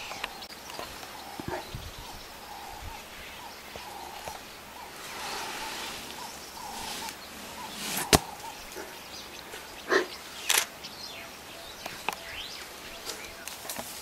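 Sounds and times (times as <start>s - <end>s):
elephant hide scraping on bark: 4.9s - 8.5s
sharp crack: 7.9s - 8.5s.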